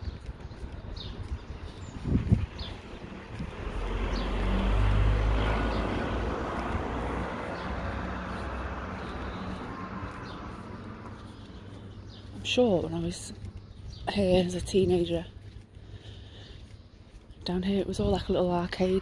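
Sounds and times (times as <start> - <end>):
motor vehicle passing by: 1.8 - 12.2.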